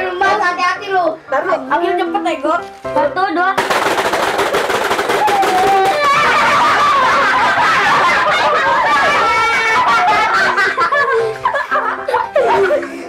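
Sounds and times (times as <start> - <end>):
faint background music: 0.0 - 13.0
children laughing and shrieking: 5.2 - 13.0.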